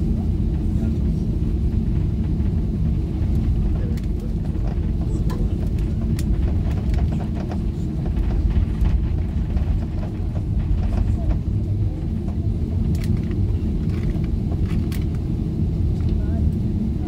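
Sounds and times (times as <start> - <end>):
jet engines rumbling at idle: 0.0 - 17.0.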